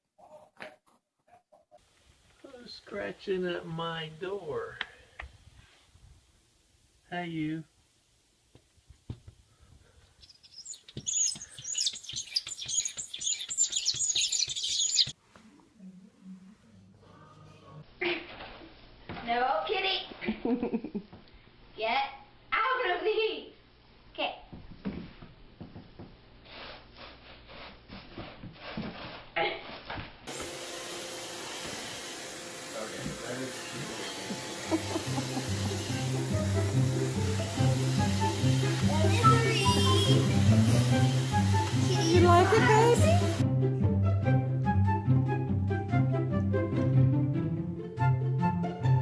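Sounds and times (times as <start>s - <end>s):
wood shavings rustling: 9.6s - 15.2s
squeaky rubbing on glass: 10.6s - 15.1s, 39.3s - 40.3s
cat paws tapping on glass: 10.9s - 14.9s.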